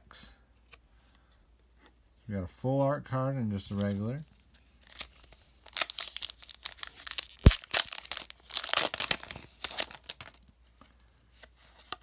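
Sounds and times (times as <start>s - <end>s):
foil wrapper tearing and crinkling: 4.8s - 10.4s.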